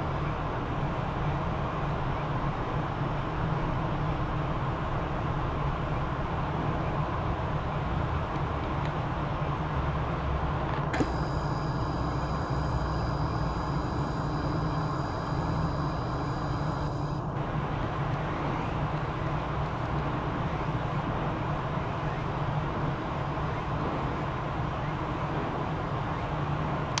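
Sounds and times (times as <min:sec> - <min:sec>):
distant road traffic: 0:00.0 - 0:27.0
high whine: 0:10.8 - 0:22.3.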